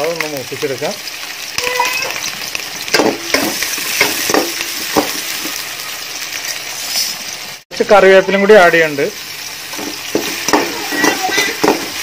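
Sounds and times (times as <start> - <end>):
food sizzling in hot oil: 0.0 - 12.0
metal utensil scraping a pot: 1.6 - 2.3, 6.5 - 7.2.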